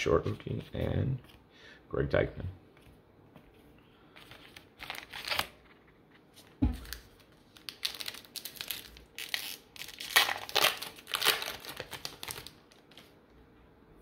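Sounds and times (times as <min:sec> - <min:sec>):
plastic wrapper crinkling and tearing: 0:04.2 - 0:05.6, 0:06.7 - 0:13.2.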